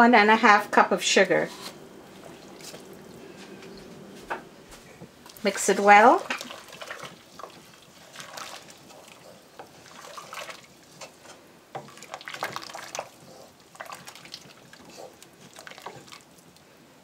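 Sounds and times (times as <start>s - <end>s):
liquid sloshing in pot: 1.4s - 4.2s, 5.2s - 16.6s.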